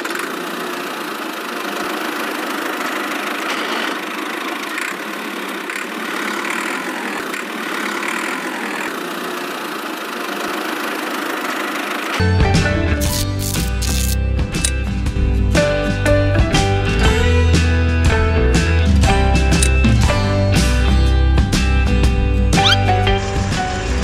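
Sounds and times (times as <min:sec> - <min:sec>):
toy electric motor and gears running: 0:00.0 - 0:12.2, 0:13.0 - 0:14.8.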